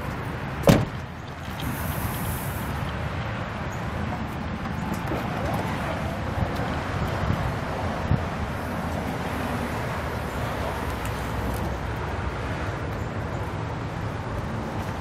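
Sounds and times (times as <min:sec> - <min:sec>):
outdoor background noise: 0:00.0 - 0:15.0
car door slamming: 0:00.6 - 0:01.0.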